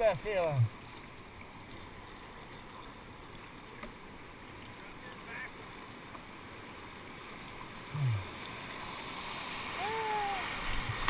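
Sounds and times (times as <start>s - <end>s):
whitewater rushing: 4.6s - 11.0s.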